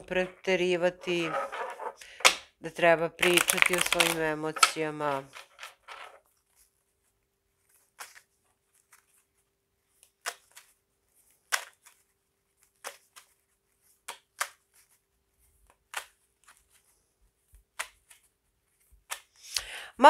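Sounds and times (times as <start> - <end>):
playing cards snapping: 3.2 - 6.0, 10.0 - 10.8, 11.4 - 12.0, 12.6 - 13.4, 14.0 - 14.6, 15.7 - 16.6, 17.7 - 18.3, 19.0 - 19.4.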